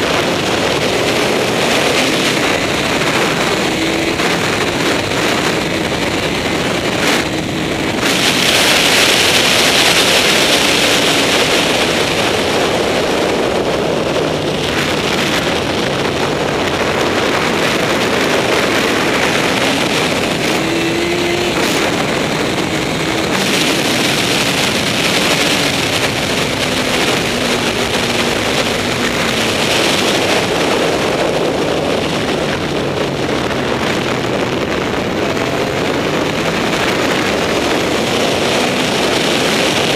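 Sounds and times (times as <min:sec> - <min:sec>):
motorcycle engine revving: 0:00.0 - 0:39.9
wind rush on microphone: 0:00.0 - 0:39.9.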